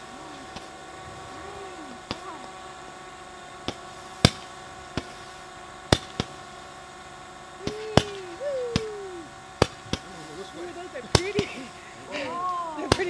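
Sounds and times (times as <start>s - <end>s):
wavering gliding tone: 7.6s - 9.5s
fireworks popping: 11.1s - 11.6s.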